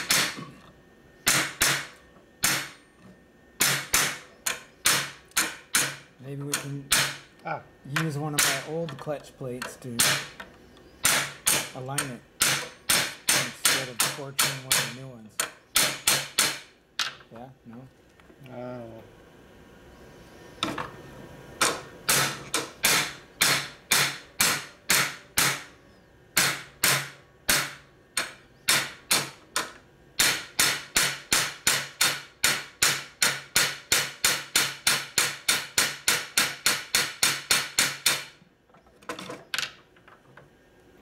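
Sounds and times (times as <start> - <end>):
hammer striking metal: 0.0 - 0.5, 1.2 - 2.8, 3.6 - 7.2, 8.0 - 8.8, 10.0 - 10.4, 11.0 - 16.7, 21.6 - 25.7, 26.4 - 29.4, 30.2 - 38.3.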